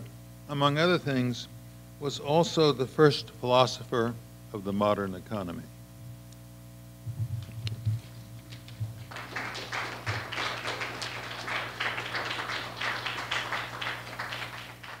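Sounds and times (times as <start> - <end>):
soft low thumps: 7.0 - 8.2, 8.8 - 9.1
audience applauding: 8.7 - 15.0.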